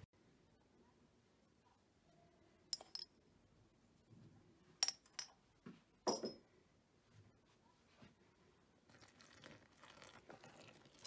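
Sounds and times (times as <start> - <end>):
teaspoon clinking against bowl: 2.8 - 3.1.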